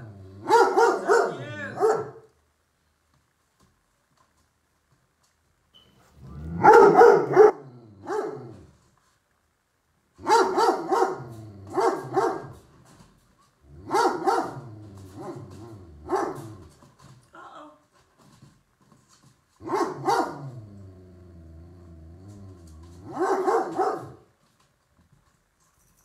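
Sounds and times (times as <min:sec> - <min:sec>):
puppy barking: 0:00.4 - 0:02.3, 0:06.5 - 0:08.6, 0:10.2 - 0:12.6, 0:13.9 - 0:15.4, 0:16.0 - 0:16.5, 0:19.6 - 0:20.5, 0:23.0 - 0:24.2.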